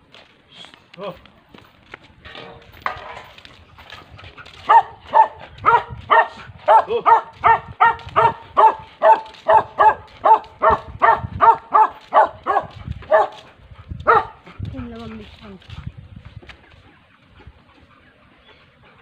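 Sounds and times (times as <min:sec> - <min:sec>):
small dog barking: 0:04.7 - 0:14.4.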